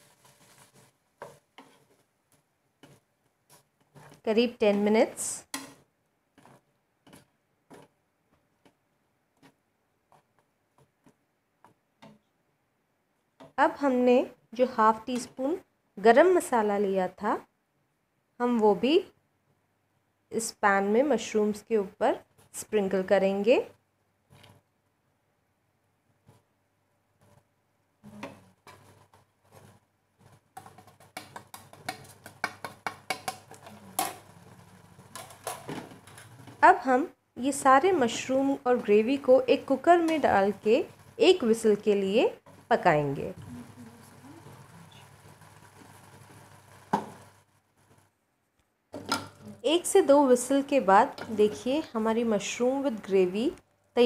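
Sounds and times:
wooden spatula tapping pan: 30.6s - 33.7s.

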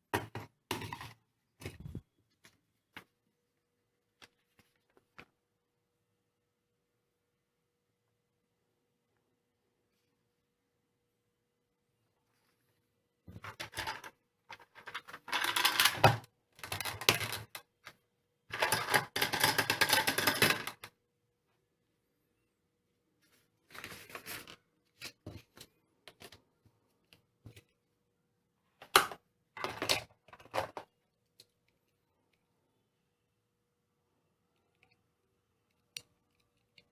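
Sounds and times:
plastic track parts clattering: 13.4s - 20.9s, 28.9s - 30.9s.

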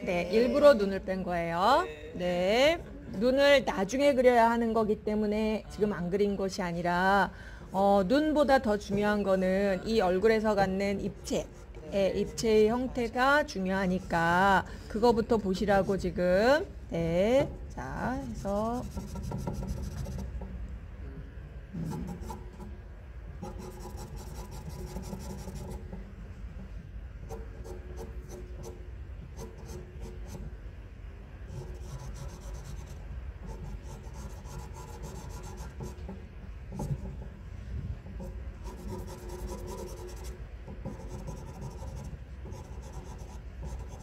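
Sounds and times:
pencil scratching on paper: 18.4s - 20.3s, 21.8s - 22.4s, 23.4s - 25.8s, 27.3s - 28.8s, 29.4s - 30.4s, 31.5s - 36.0s, 38.6s - 44.0s.

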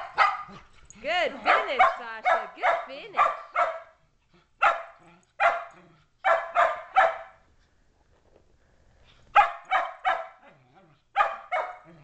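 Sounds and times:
dogs barking: 0.0s - 4.0s, 4.6s - 7.4s, 9.4s - 10.5s, 11.2s - 12.0s.

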